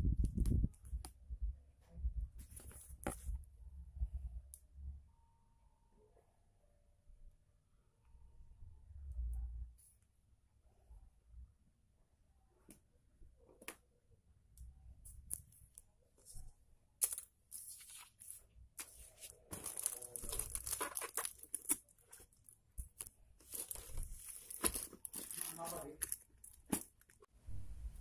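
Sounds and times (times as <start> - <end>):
plastic wrapping crinkling and tearing: 17.1 - 27.3.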